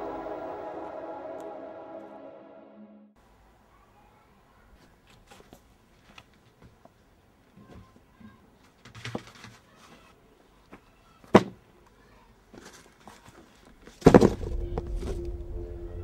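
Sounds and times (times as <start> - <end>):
music: 0.0 - 3.2, 14.4 - 16.0
cardboard box thumping down: 14.0 - 15.2.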